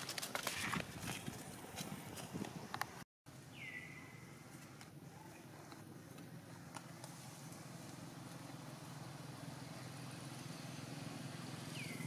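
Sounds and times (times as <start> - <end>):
distant engine humming: 3.6 - 12.0.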